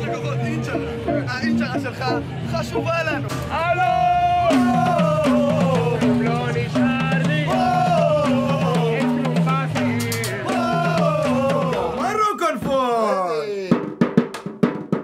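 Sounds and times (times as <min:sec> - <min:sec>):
steady drum beats: 0:00.0 - 0:15.0
wailing lead melody: 0:03.6 - 0:12.1.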